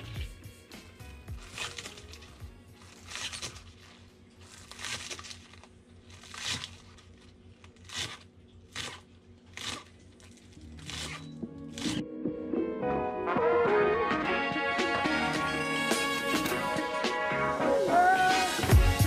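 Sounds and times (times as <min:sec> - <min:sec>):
knife cutting on board: 0:07.7 - 0:10.0, 0:10.8 - 0:12.0.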